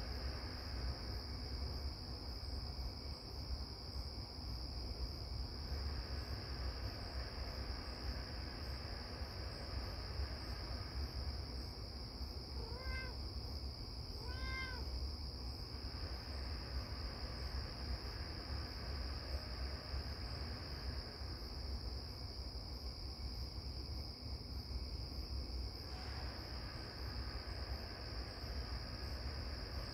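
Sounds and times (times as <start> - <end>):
crickets chirping: 0.0 - 29.9
cat meowing: 12.6 - 13.2, 14.1 - 14.9.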